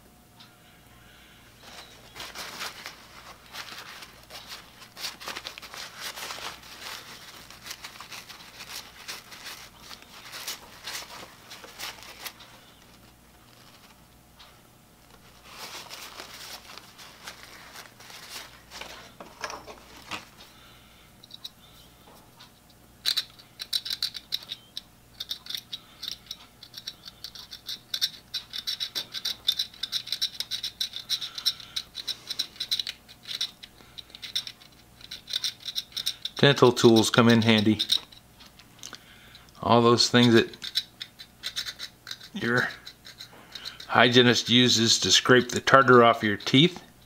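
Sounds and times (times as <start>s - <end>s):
paper towel rubbing metal parts: 1.6s - 14.0s, 15.1s - 20.4s, 25.2s - 38.2s, 39.7s - 46.8s
dental pick scraping and clicking: 23.0s - 39.5s, 40.2s - 44.3s.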